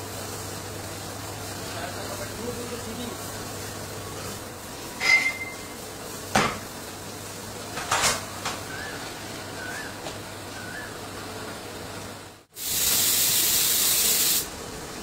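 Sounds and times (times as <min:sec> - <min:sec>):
steady background hum: 0:00.0 - 0:15.0
metal tools clanking: 0:05.0 - 0:05.7.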